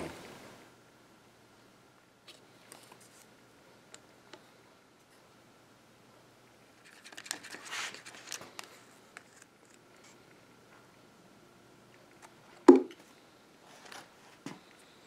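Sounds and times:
sharp knock: 0:12.7 - 0:12.9.

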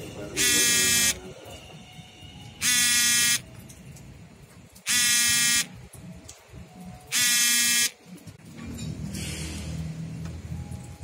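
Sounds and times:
buzzing warning signal blasts: 0:00.4 - 0:01.2, 0:02.6 - 0:03.5, 0:04.9 - 0:05.9, 0:07.1 - 0:08.1.

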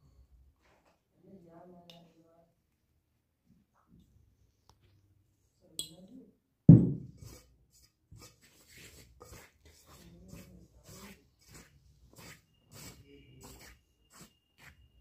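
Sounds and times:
bowls and containers knocking: 0:06.7 - 0:07.2
heavy thud: 0:06.7 - 0:07.2.

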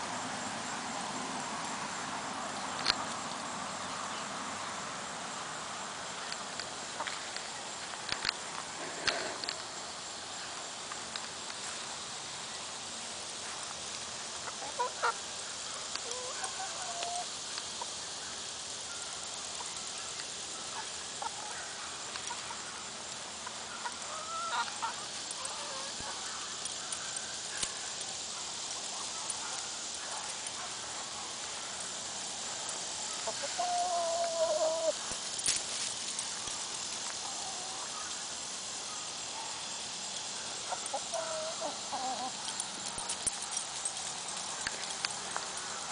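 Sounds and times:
steady hiss: 0:00.0 - 0:45.9
chickens clucking: 0:16.0 - 0:18.0, 0:23.4 - 0:27.7, 0:33.1 - 0:35.2, 0:40.6 - 0:43.6.

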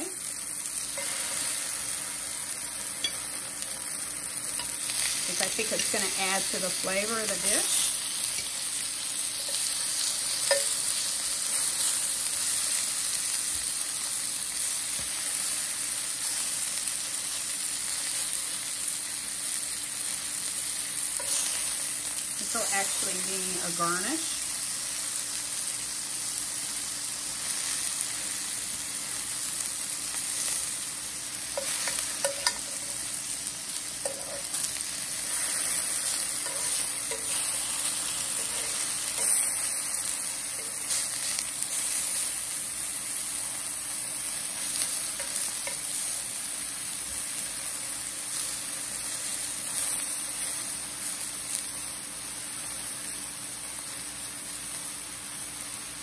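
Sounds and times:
lemon slices sizzling in oil: 0:00.0 - 0:56.0
metal tongs clicking on pan: 0:10.3 - 0:10.9, 0:31.6 - 0:32.7.

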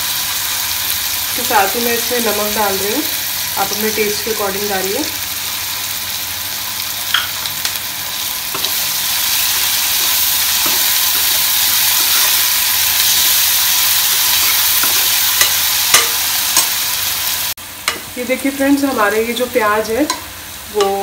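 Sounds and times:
onions sizzling in hot oil: 0:00.0 - 0:21.0
spoon clicking on pan: 0:14.9 - 0:16.8.

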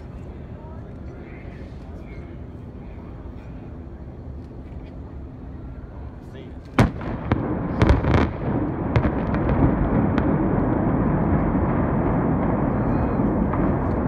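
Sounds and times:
loud rumble of collapsing structure: 0:06.8 - 0:14.0.

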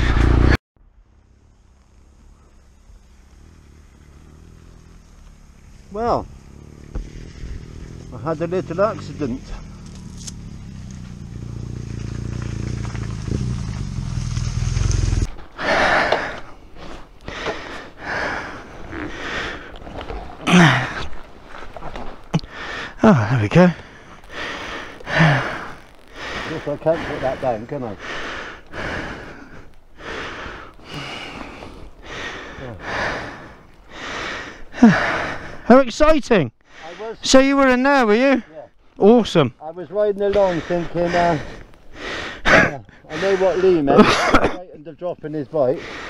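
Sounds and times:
motorcycle engine running: 0:00.0 - 0:15.3
heavy breathing: 0:15.6 - 0:19.8, 0:22.4 - 0:23.0, 0:23.6 - 0:35.7, 0:40.3 - 0:44.0, 0:45.7 - 0:46.0
short grunts: 0:20.4 - 0:21.1, 0:42.4 - 0:44.7.

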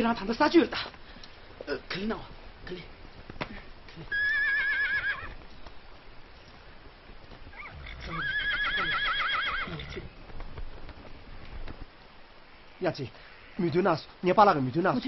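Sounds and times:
horse whinnying: 0:04.0 - 0:05.4, 0:07.5 - 0:10.1.

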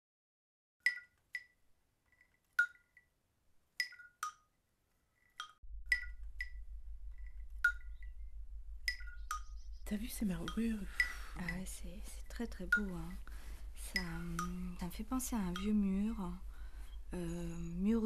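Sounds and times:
glassy chimes: 0:00.9 - 0:01.6, 0:02.2 - 0:03.1, 0:03.8 - 0:04.5, 0:05.2 - 0:06.6, 0:07.2 - 0:08.2, 0:08.9 - 0:09.7, 0:10.3 - 0:13.2
low steady hum: 0:05.6 - 0:18.0.

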